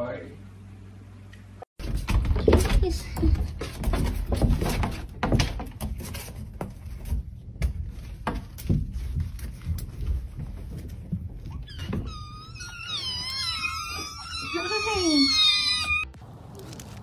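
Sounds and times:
knocks and rustling: 0:01.8 - 0:12.4
door opening: 0:11.4 - 0:16.2.

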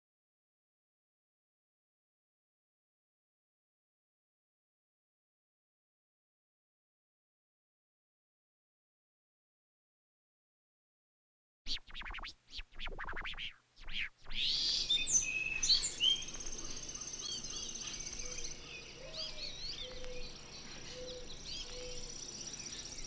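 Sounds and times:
short sweeping bursts: 0:11.7 - 0:16.7
birds chirping: 0:11.9 - 0:23.0.

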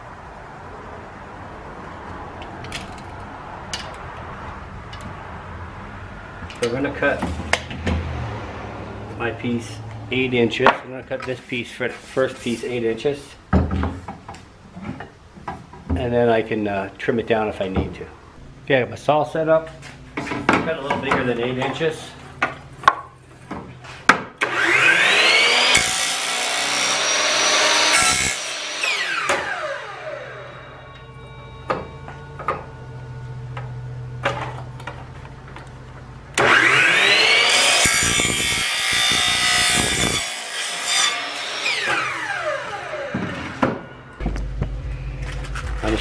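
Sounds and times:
miter saw cutting plastic pipe: 0:24.4 - 0:30.6, 0:36.4 - 0:43.6.

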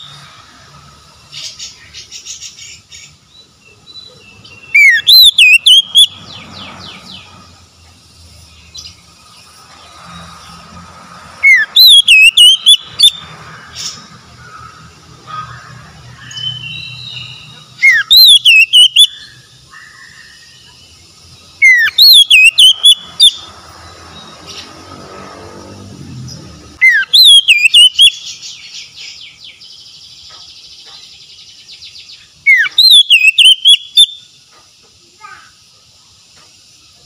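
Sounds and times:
bird singing whistled phrases: 0:03.7 - 0:06.2, 0:11.4 - 0:13.3, 0:16.2 - 0:19.4, 0:21.6 - 0:23.5, 0:26.8 - 0:29.5, 0:32.4 - 0:34.3.

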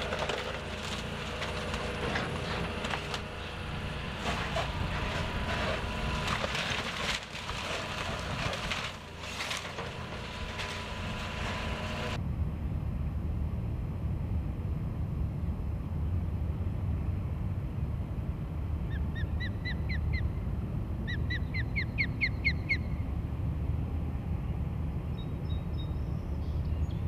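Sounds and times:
excavator demolishing wooden building: 0:00.0 - 0:12.2
low wind rumble on microphone: 0:10.1 - 0:27.0.

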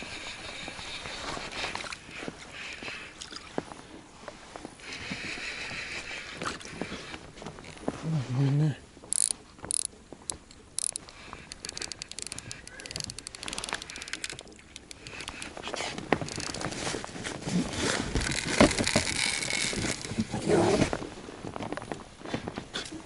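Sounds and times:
fishing reel clicking: 0:09.1 - 0:15.6, 0:16.2 - 0:16.8, 0:18.2 - 0:20.2
knocks and rustling: 0:15.9 - 0:21.0.

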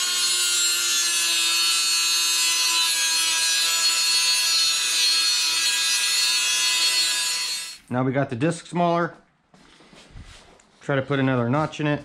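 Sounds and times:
rotary tool grinding metal: 0:00.0 - 0:07.8.

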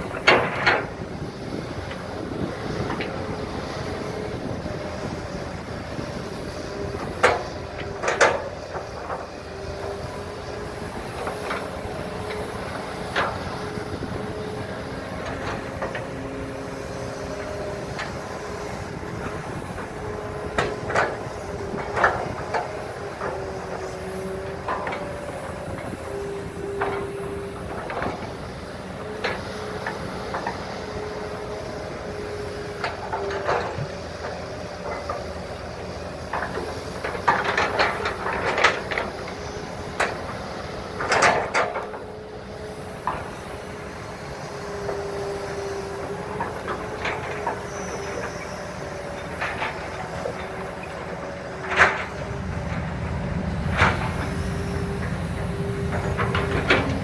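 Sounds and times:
diesel engines under load: 0:00.0 - 0:57.0
hydraulic whine: 0:00.0 - 0:57.0.

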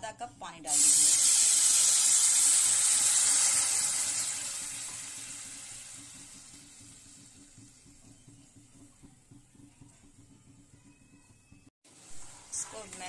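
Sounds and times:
water hissing in hot pan: 0:00.7 - 0:08.0, 0:11.9 - 0:13.0.

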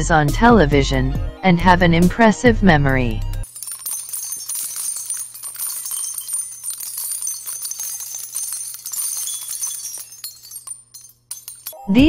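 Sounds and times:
jingling bells: 0:03.4 - 0:12.0.

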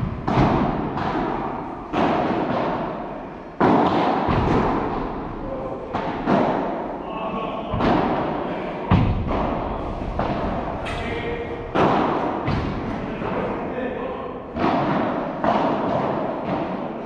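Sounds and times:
ball struck by rackets: 0:00.0 - 0:06.9, 0:07.7 - 0:13.4, 0:14.5 - 0:16.9
ball bouncing on court: 0:03.6 - 0:05.1, 0:11.7 - 0:13.0.

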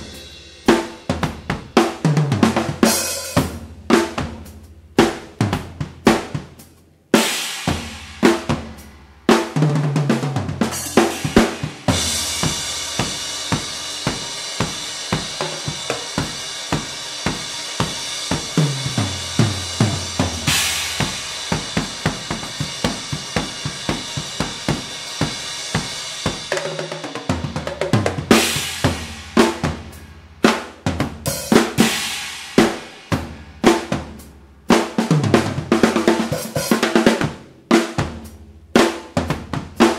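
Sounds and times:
drum kit played with sticks: 0:00.0 - 0:39.9
cymbal wash: 0:10.7 - 0:26.5.

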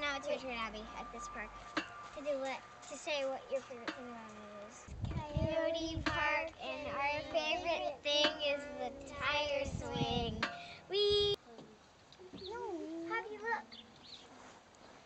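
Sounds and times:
girls singing together: 0:05.2 - 0:11.3.

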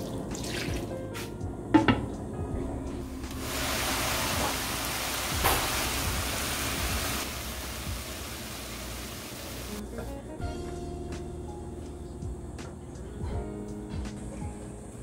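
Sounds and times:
sprouts sizzling in a pan: 0:03.3 - 0:09.8.

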